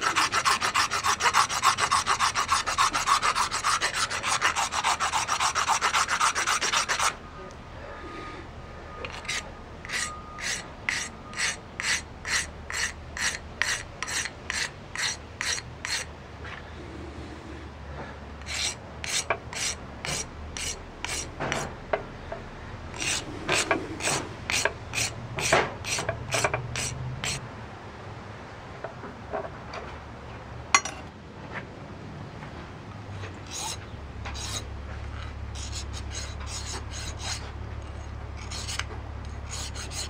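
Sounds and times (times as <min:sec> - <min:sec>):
hand file rasping on stone: 0:00.0 - 0:07.2, 0:09.1 - 0:16.1, 0:18.4 - 0:21.7, 0:23.0 - 0:27.4, 0:33.5 - 0:33.8, 0:34.4 - 0:34.6, 0:35.6 - 0:37.5, 0:38.4 - 0:38.9, 0:39.5 - 0:40.0.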